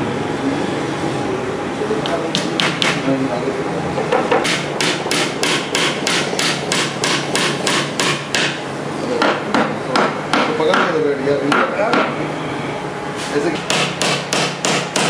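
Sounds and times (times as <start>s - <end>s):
hammer tapping a nail: 2.0s - 3.0s, 4.1s - 8.6s, 9.2s - 12.1s, 13.6s - 15.0s.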